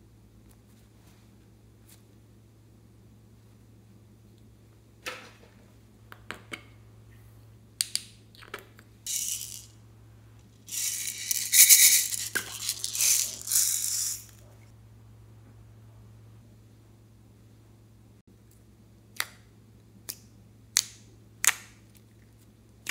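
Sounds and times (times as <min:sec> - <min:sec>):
plastic beads rattling into dish: 0:09.1 - 0:09.7, 0:10.6 - 0:14.4.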